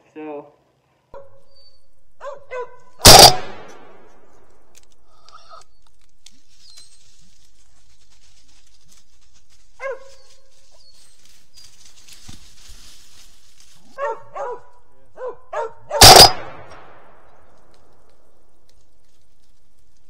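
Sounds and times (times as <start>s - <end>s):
dog barking: 1.2s - 1.5s, 2.2s - 3.0s, 9.8s - 10.4s, 14.0s - 16.1s
gunshot: 3.0s - 4.1s, 16.0s - 17.2s.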